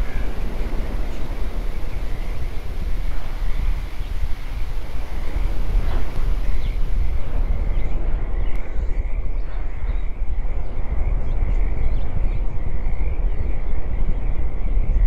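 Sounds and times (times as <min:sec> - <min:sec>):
loud steady rumbling: 0:00.0 - 0:11.5.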